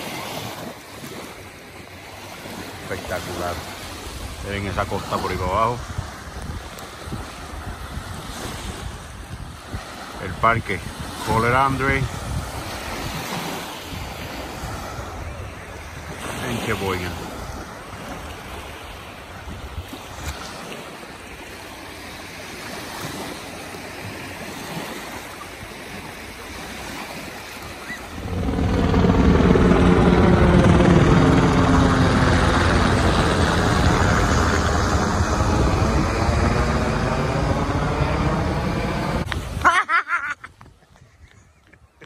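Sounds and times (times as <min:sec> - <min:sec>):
small waves breaking: 0:00.0 - 0:41.6
wind: 0:00.0 - 0:42.0
helicopter rotor drone: 0:01.3 - 0:08.2, 0:27.5 - 0:39.8.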